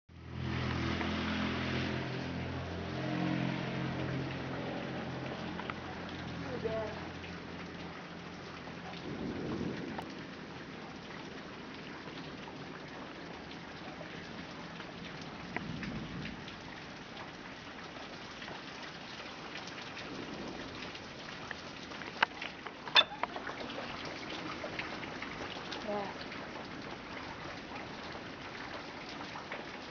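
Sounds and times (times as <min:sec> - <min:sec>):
steady rain: 0:00.1 - 0:29.9
low rumbles of thunder: 0:08.5 - 0:11.7, 0:15.3 - 0:17.0.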